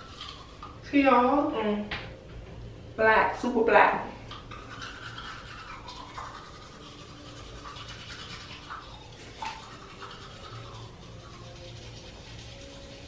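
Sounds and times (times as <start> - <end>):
toothbrush scrubbing teeth: 0.0 - 0.9, 4.2 - 13.0.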